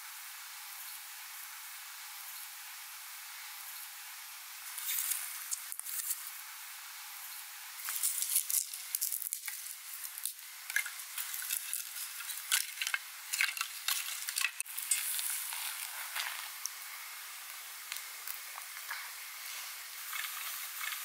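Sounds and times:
dry twigs crackling and snapping: 4.7s - 6.2s, 7.8s - 16.8s, 17.4s - 18.8s.

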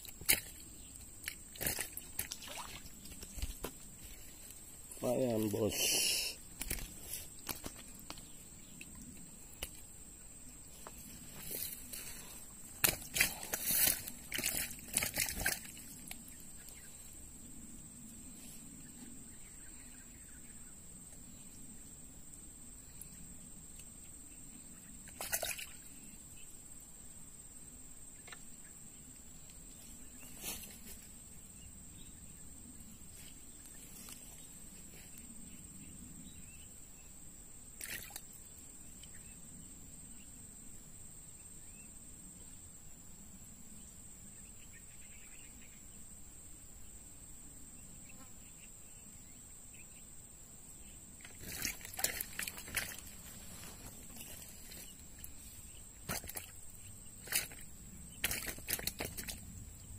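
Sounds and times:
sharp clicks or splashes: 0.1s - 0.6s, 12.8s - 16.2s, 25.1s - 25.8s, 37.8s - 38.3s, 51.2s - 53.1s, 56.1s - 56.5s, 58.2s - 59.4s.

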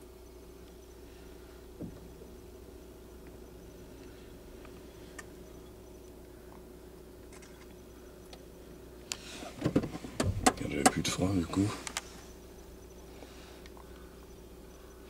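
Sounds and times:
faint low hum: 0.0s - 15.0s
rustle: 0.0s - 15.0s.

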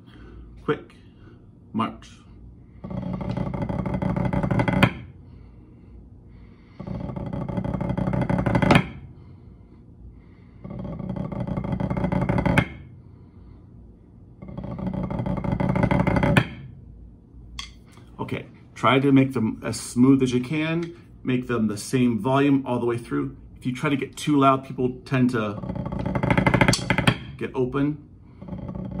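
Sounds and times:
drumsticks buzz rolls on practice pad: 2.7s - 17.9s, 18.8s - 29.0s.

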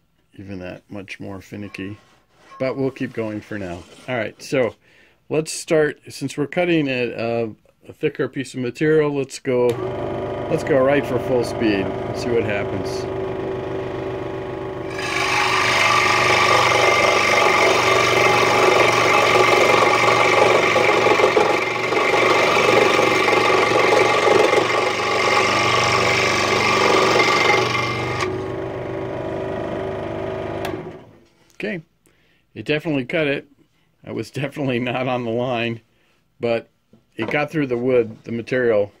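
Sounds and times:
scroll saw motor humming: 9.7s - 31.1s
saw blade cutting board: 14.8s - 28.5s.

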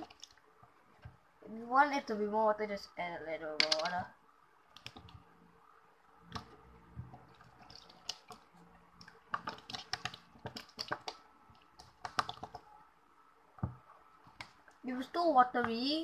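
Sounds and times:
wet slime squishes: 0.0s - 1.2s, 3.6s - 4.1s, 4.7s - 5.3s, 6.2s - 12.8s, 13.6s - 15.0s.

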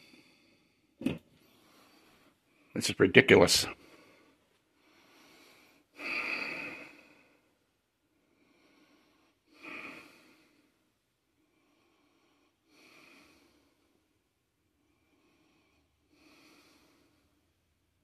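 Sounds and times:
person breathing out heavily: 3.8s - 7.5s, 8.3s - 10.8s, 15.0s - 17.4s.

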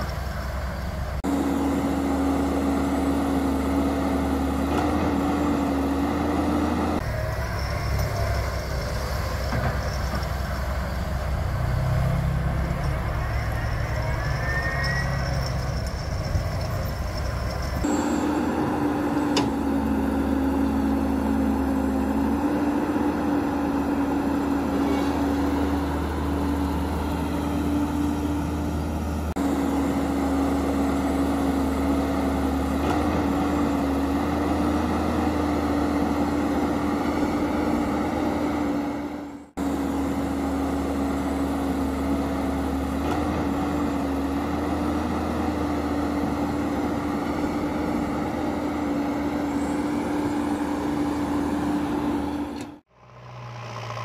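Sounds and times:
engine droning: 0.0s - 54.0s.

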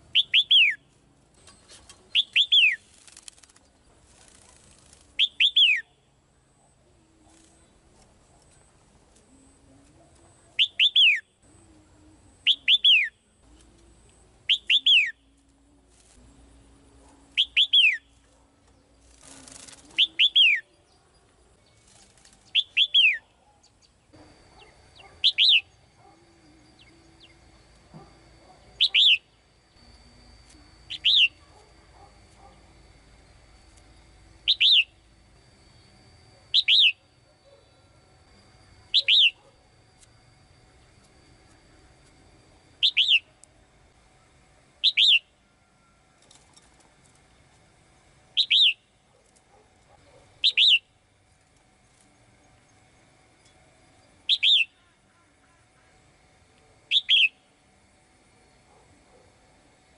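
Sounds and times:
wings fluttering: 0.1s - 5.8s, 7.1s - 10.9s, 13.5s - 20.6s, 21.6s - 23.4s, 46.1s - 52.3s.

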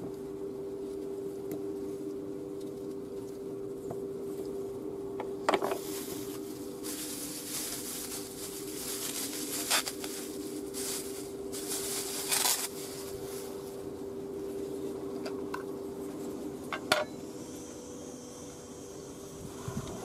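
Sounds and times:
steady low hum: 0.0s - 20.0s
plastic bag crinkling: 5.8s - 13.6s.

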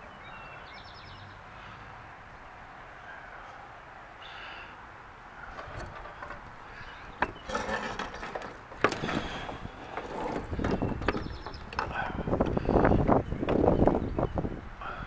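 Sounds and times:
sharp clicks and knocks: 5.5s - 12.6s.

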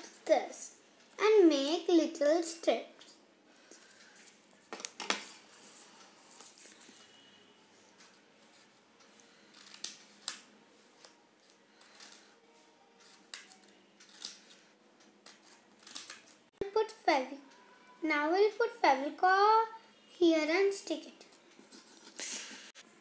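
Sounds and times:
scissors snipping paper: 9.5s - 10.4s, 13.0s - 14.6s, 15.2s - 16.4s.

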